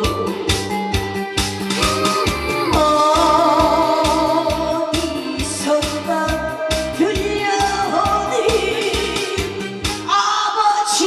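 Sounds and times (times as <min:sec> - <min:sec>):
woman singing into a microphone: 0:00.0 - 0:00.8, 0:01.8 - 0:11.0
backing track with drum beat: 0:00.0 - 0:10.2.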